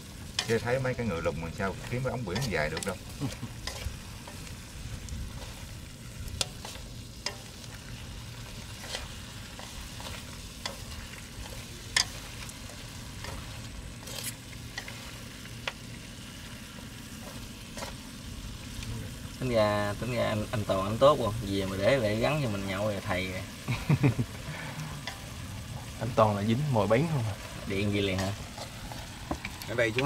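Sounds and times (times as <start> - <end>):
meat sizzling in a wok: 0.0 - 30.0
chopsticks clicking against pan: 0.4 - 0.6, 1.8 - 4.4, 6.3 - 7.7, 8.8 - 15.0.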